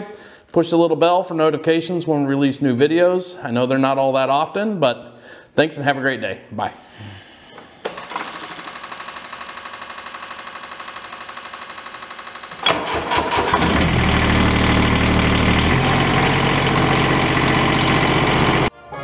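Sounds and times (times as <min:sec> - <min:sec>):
diesel engine cranking: 0:08.0 - 0:18.7
diesel engine idling: 0:12.6 - 0:18.7.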